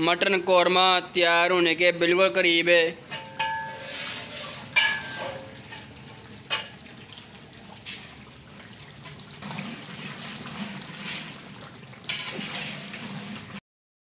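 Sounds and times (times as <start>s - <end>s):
pot bubbling: 0.0s - 13.6s
liquid sloshing: 3.6s - 13.6s.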